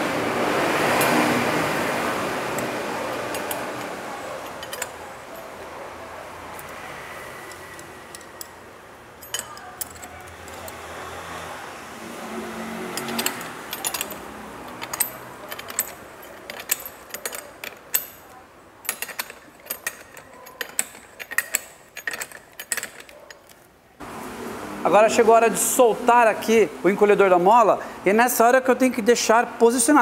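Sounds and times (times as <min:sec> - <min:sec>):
metal parts being handled: 0:00.8 - 0:05.7, 0:06.5 - 0:11.5, 0:12.8 - 0:23.8
wrench clicking on nut: 0:02.5 - 0:05.0, 0:07.4 - 0:08.6, 0:09.2 - 0:10.8, 0:12.9 - 0:23.6.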